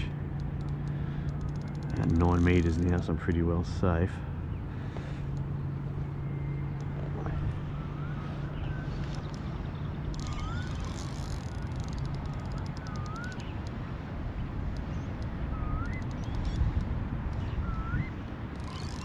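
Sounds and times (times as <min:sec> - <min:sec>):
steady low hum: 0:00.0 - 0:19.0
rapid fine ticks: 0:00.3 - 0:03.5, 0:08.9 - 0:13.8, 0:14.7 - 0:17.6, 0:18.5 - 0:19.0
rising whistled bird calls: 0:06.2 - 0:13.6, 0:14.9 - 0:16.8, 0:17.4 - 0:19.0.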